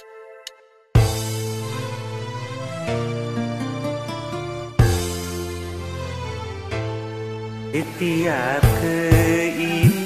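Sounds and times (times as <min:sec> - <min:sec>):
karaoke backing music: 0:04.8 - 0:10.0.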